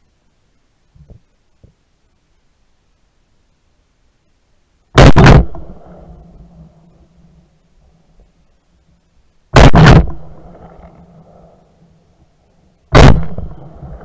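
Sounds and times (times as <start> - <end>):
gunshots with echo: 5.0 - 6.3, 9.6 - 10.9, 12.9 - 14.0.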